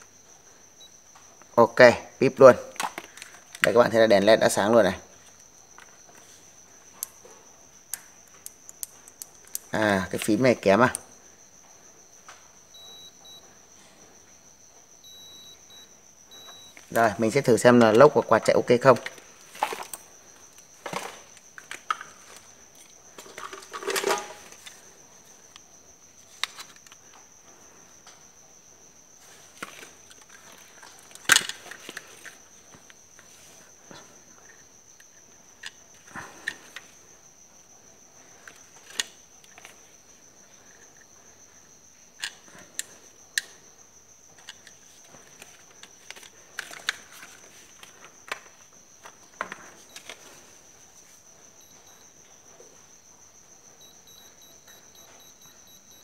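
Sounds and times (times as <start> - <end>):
faint high-pitched tone: 53.8 - 56.0.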